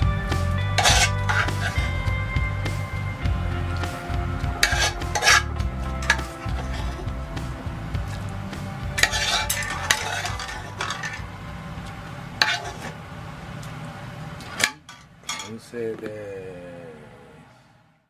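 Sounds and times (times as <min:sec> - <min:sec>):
low background hum: 0:00.0 - 0:18.0
metal spoon scraping ceramic plate: 0:00.8 - 0:02.0, 0:04.6 - 0:05.5, 0:09.0 - 0:11.2, 0:12.4 - 0:13.0.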